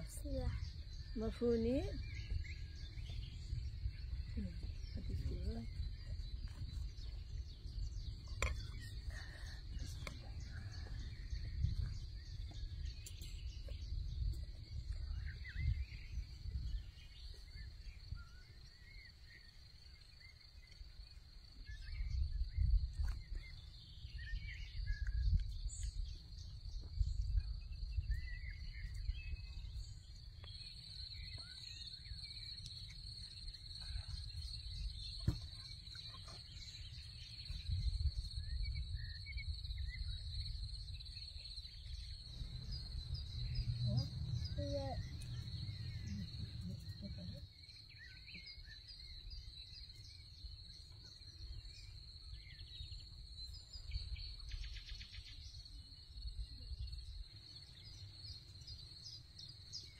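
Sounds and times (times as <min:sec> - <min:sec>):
bird chirps: 0:00.0 - 0:59.9
high insect drone: 0:36.4 - 0:59.9
low rumble: 0:37.7 - 0:48.2.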